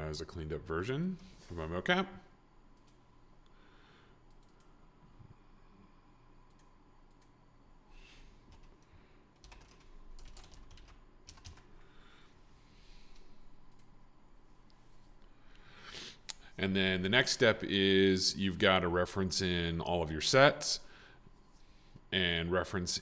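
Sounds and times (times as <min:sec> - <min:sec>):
faint keyboard typing: 0:02.7 - 0:03.1, 0:04.3 - 0:04.8, 0:06.4 - 0:07.4, 0:08.4 - 0:12.0, 0:13.0 - 0:14.0.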